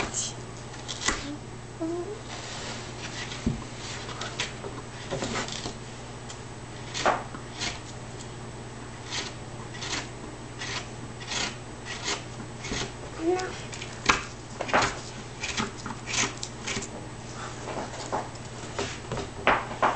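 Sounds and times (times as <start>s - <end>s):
steady low hum: 0.0s - 19.9s
carving tool scraping wood: 6.8s - 8.0s, 9.0s - 13.0s, 15.4s - 16.9s.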